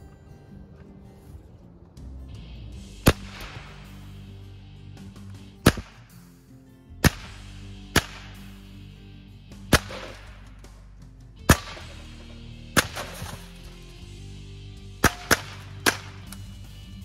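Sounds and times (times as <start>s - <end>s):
background music: 0.0s - 17.0s
rifle shots: 3.0s - 4.1s, 5.6s - 6.1s, 7.0s - 8.7s, 9.7s - 10.6s, 11.5s - 13.6s, 15.0s - 16.4s.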